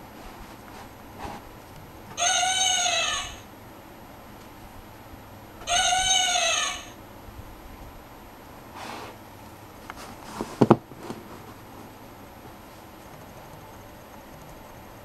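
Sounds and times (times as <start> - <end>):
recorded elephant trumpet call: 2.2 - 3.5, 5.6 - 7.0.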